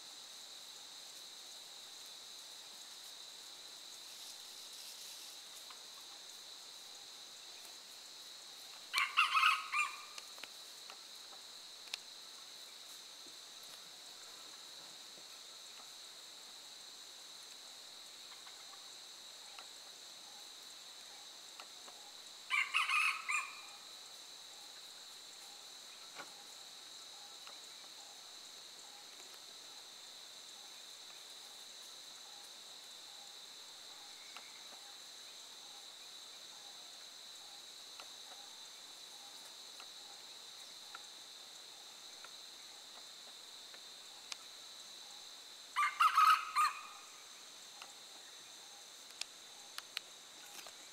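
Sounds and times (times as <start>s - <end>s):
high-pitched insect hum: 0.0s - 50.9s
rooster crowing: 9.0s - 10.1s, 22.5s - 23.7s, 45.8s - 47.0s.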